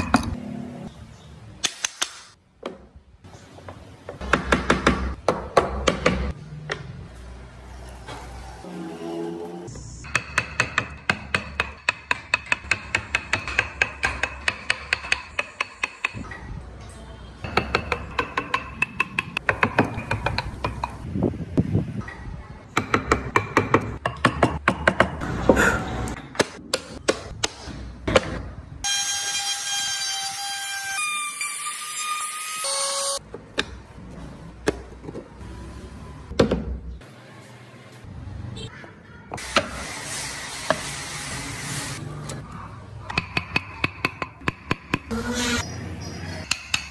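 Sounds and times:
mallet striking wood chisel: 4.2s - 6.3s, 10.0s - 16.2s, 17.5s - 21.0s, 22.8s - 25.2s, 43.1s - 45.1s, 46.4s - 46.9s.

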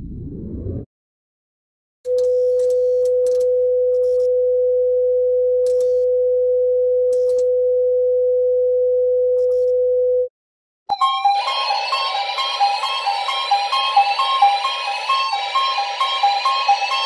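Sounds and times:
low hum: 0.0s - 0.9s.

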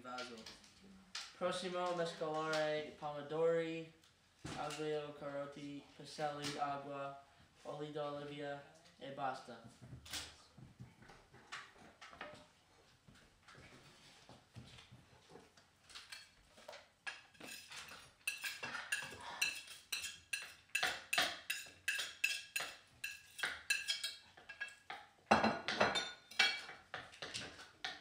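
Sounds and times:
knife and utensils clinking: 16.0s - 28.0s.

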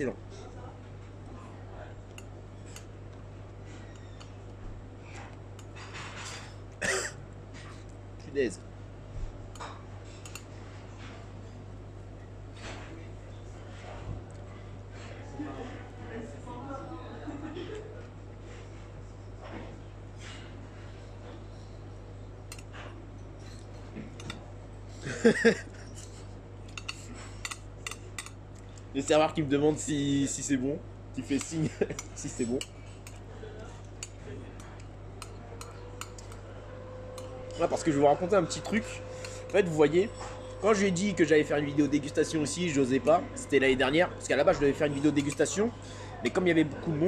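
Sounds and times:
steady low hum: 0.0s - 47.0s
metal chopsticks clicking: 34.0s - 36.4s.

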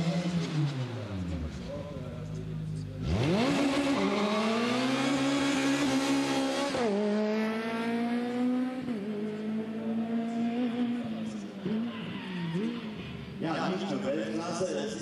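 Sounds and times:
kart engine high buzzing whine: 2.5s - 14.0s.

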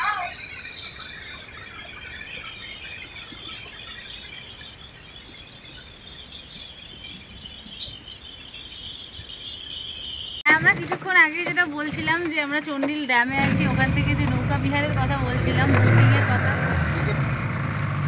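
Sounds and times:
insects chirring: 0.0s - 17.9s.

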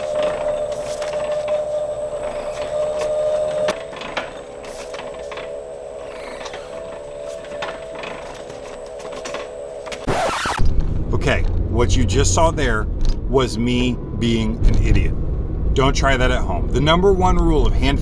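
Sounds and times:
steady machine hum: 0.0s - 18.0s.

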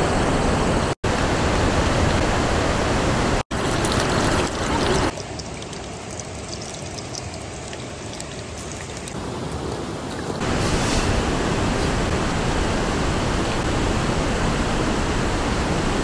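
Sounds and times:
rushing river: 1.2s - 14.3s
oil sizzling and crackling: 3.5s - 10.4s.

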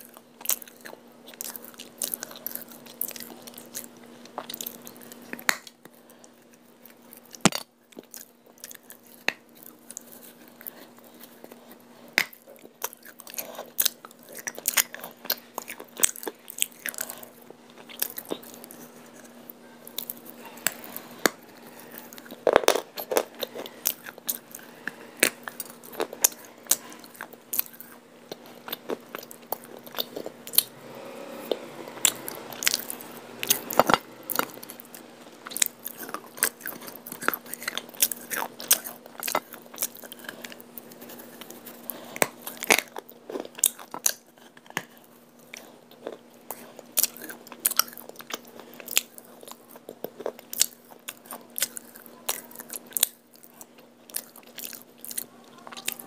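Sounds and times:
clay being crunched and chewed: 0.0s - 30.7s.

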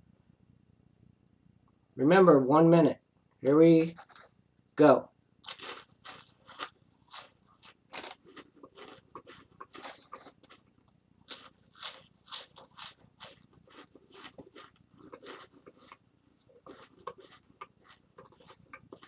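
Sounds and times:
crackers being chewed: 3.8s - 4.4s, 5.4s - 19.0s.

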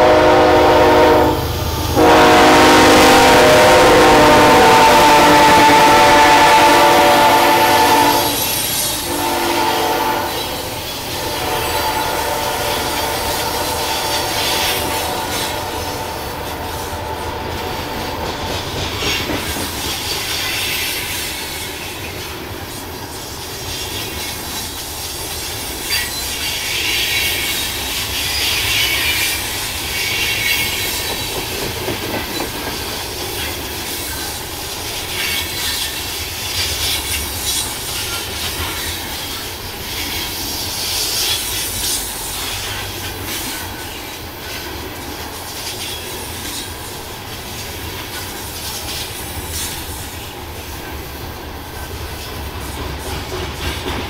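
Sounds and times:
train rumble and clickety-clack: 0.0s - 54.0s
train wheels squealing: 8.2s - 9.1s, 18.0s - 22.4s, 23.0s - 44.7s, 45.4s - 50.4s.

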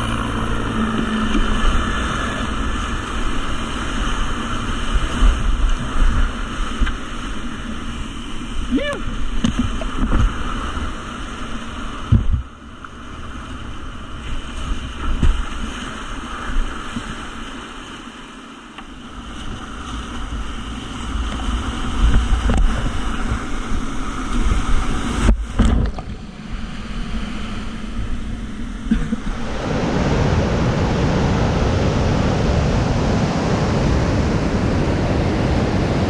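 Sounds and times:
water and wind buffeting microphone: 0.0s - 36.0s
whitewater rapids rushing: 26.2s - 36.0s.

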